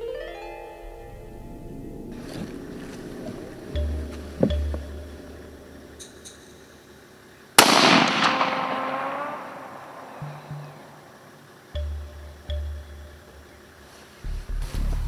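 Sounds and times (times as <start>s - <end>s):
rifle shot with echo: 7.6s - 10.2s.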